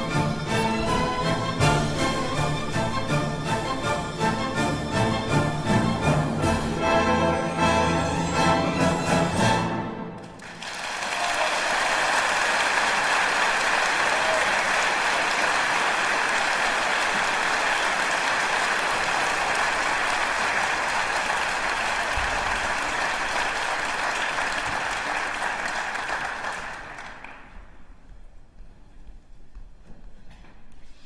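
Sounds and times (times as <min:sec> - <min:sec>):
audience applauding: 0:10.2 - 0:27.8.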